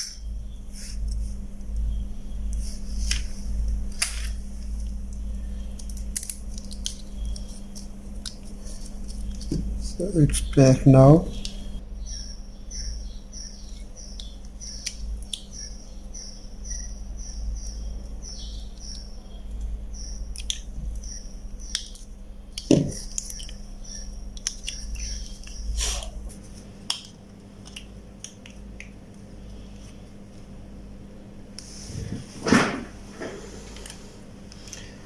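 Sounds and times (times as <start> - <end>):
thump: 32.4 - 32.9.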